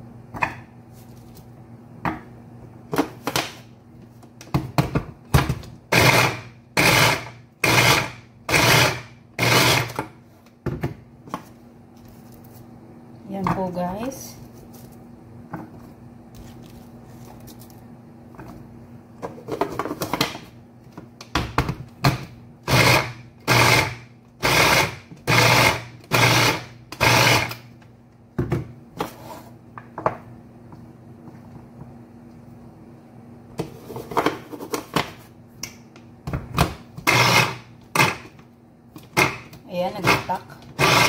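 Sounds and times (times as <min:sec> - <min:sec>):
electric food chopper bursts: 0:05.9 - 0:10.0, 0:22.6 - 0:27.7, 0:37.0 - 0:38.2, 0:40.0 - 0:41.0.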